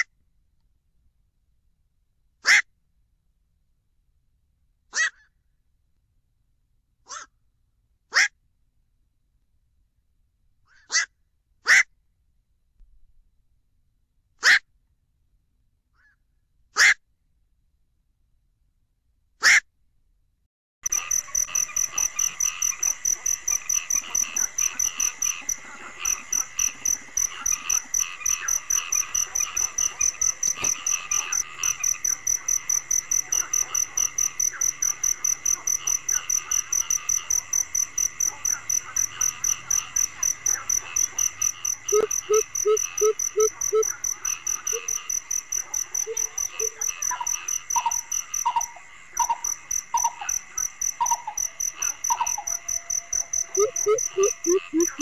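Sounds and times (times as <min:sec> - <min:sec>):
crickets chirping: 0:20.8 - 0:55.0
frogs calling: 0:20.8 - 0:55.0
higher repeating call: 0:52.8 - 0:55.0.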